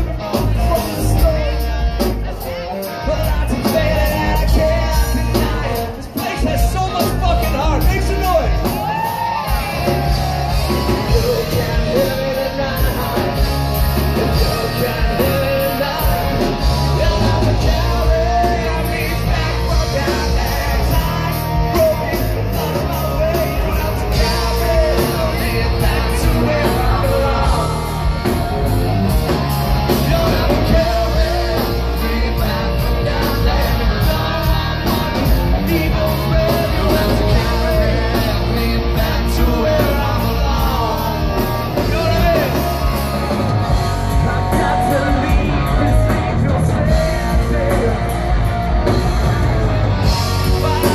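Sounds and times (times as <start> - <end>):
bass guitar: 0.0 - 50.9
distorted electric guitar: 0.0 - 50.9
drums: 0.0 - 50.9
man singing: 0.0 - 50.9.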